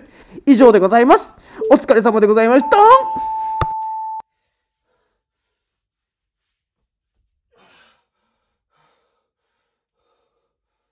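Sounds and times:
faint breathing: 7.5 - 10.9.

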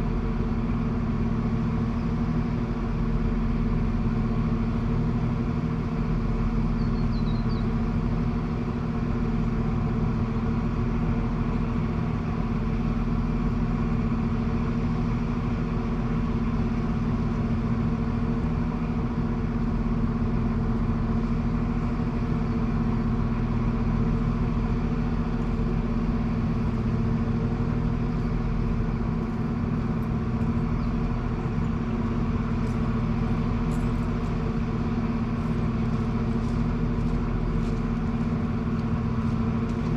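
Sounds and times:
train diesel engines idling: 0.0 - 39.9.

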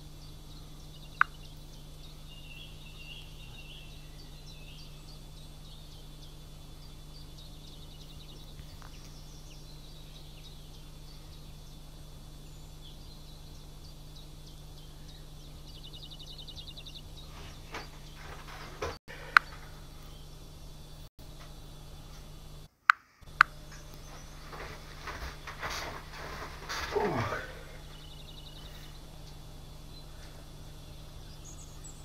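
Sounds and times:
bird trilling: 0.0 - 21.1
birds chirping: 0.0 - 32.0
steady low hum: 0.0 - 32.0.

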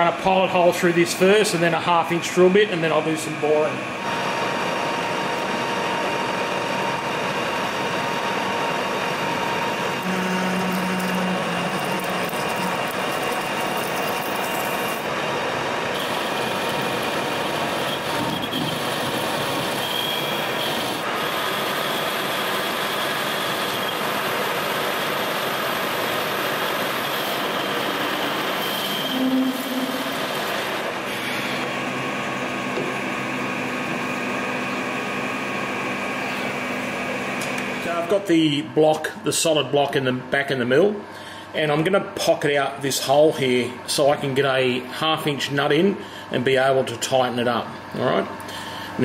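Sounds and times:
metal lathe drilling metal: 3.4 - 38.2.

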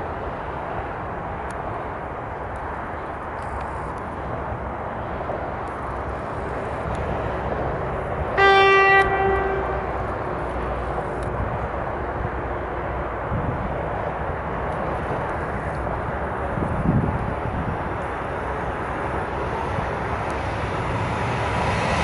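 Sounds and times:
electric locomotive rumble: 0.0 - 22.0
short train horn blast: 8.4 - 10.6.

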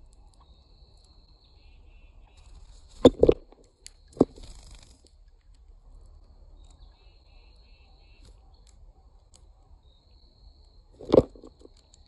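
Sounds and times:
high insect trill: 5.8 - 8.6.

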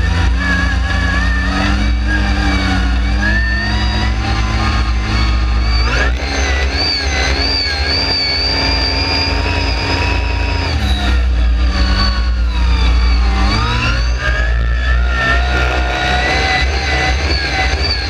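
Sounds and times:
off-road vehicle engine revving: 0.0 - 18.0
heavy low rumble: 10.0 - 18.0.

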